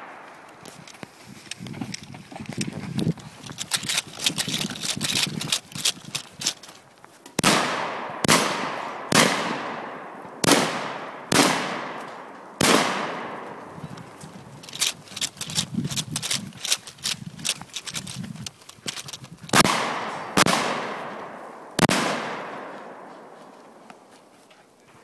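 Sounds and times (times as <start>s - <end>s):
running footsteps on dirt: 0.0s - 7.3s, 13.6s - 19.6s, 22.7s - 25.0s
handgun shots echoing: 7.4s - 13.7s, 19.5s - 23.4s.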